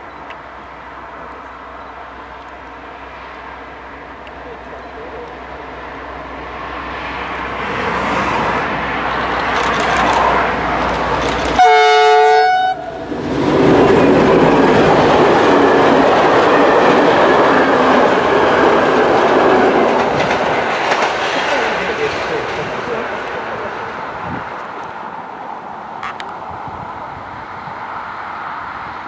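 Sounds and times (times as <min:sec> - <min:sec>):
train wheels rumbling on rails: 0:03.6 - 0:29.0
train horn: 0:11.6 - 0:13.0.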